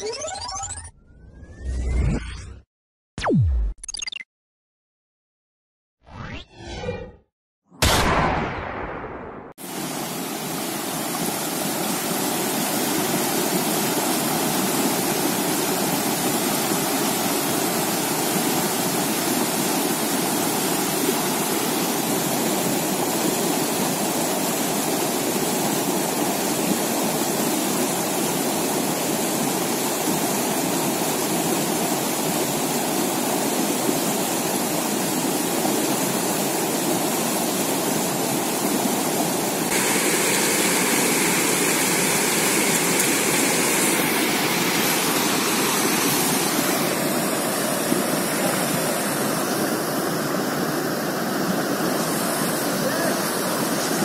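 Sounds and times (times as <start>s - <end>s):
river rapids roaring: 39.8s - 54.0s.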